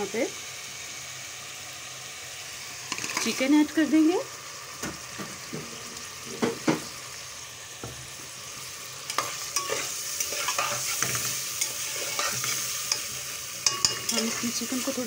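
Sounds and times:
chicken sizzling in pot: 0.0 - 15.0
spoon scraping pot: 9.1 - 15.0.

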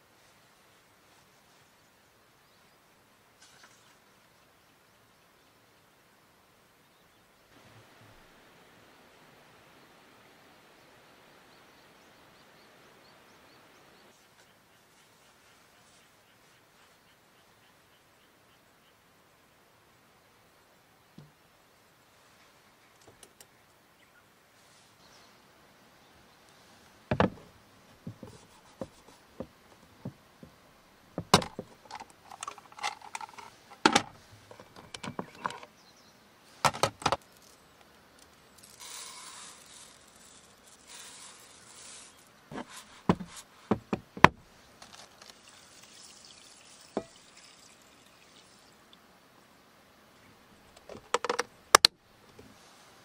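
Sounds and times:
dry rice pouring into pan: 38.6 - 42.2
water pouring: 45.0 - 48.8.

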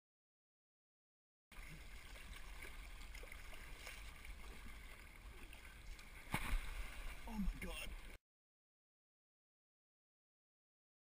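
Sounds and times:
water sloshing against kayak hull: 1.6 - 8.2.

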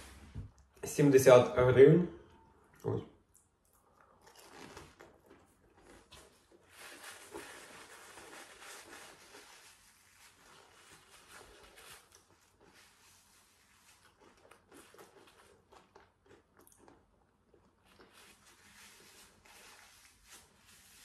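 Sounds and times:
faint chewing: 2.6 - 9.5, 10.4 - 19.8
paper sleeve rustling: 6.2 - 14.0, 18.2 - 21.0.

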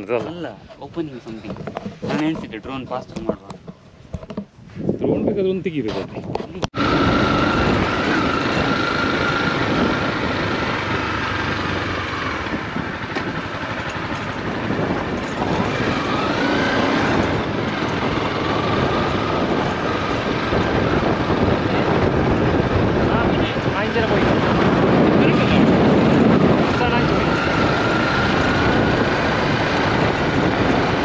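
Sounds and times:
wind noise on microphone: 0.0 - 31.0
motorcycle engine running: 6.8 - 31.0.

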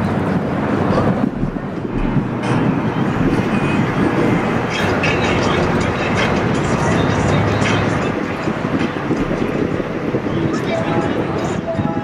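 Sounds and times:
loud traffic rumble: 0.0 - 12.0.

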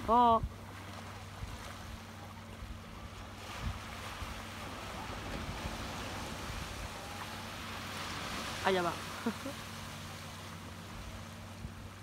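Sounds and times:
small waves washing on beach: 0.0 - 12.0
wind on microphone: 2.6 - 8.6.

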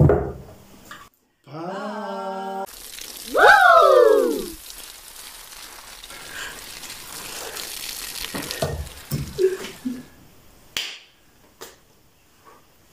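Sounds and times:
water squirting hiss: 2.7 - 10.2
hands slapping in a high-five: 10.8 - 11.8.

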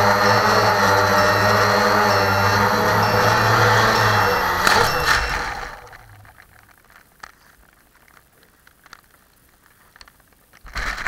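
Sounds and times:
drone motors winding down: 0.0 - 6.7
small clicks: 4.6 - 11.0.

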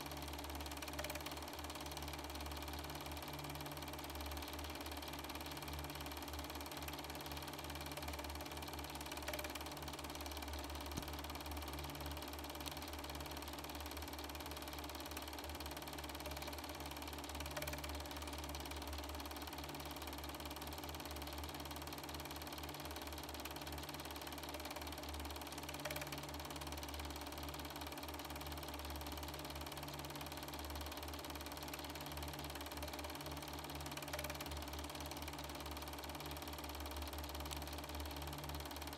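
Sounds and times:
film projector whirring: 0.0 - 38.9
faint projector click: 6.7 - 11.6, 16.0 - 18.9, 23.3 - 27.2, 30.8 - 38.9.

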